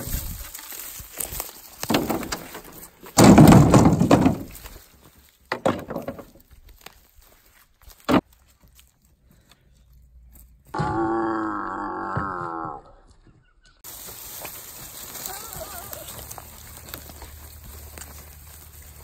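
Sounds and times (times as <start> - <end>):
sticks clattering into wooden box: 1.8 - 4.6.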